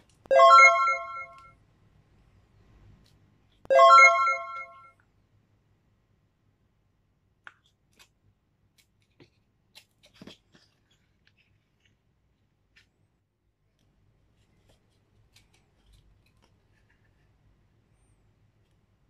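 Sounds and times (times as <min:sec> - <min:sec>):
bright bell-like chime: 0:00.3 - 0:01.5, 0:03.7 - 0:04.9
cardboard pages turning: 0:08.8 - 0:13.0, 0:13.8 - 0:17.4.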